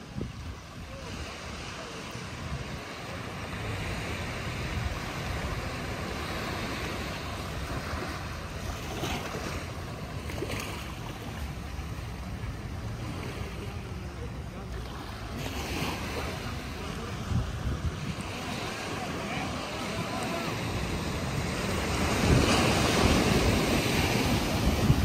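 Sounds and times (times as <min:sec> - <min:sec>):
wind buffeting microphone: 0:00.0 - 0:03.2, 0:16.2 - 0:25.0
surf washing onto beach: 0:00.0 - 0:25.0.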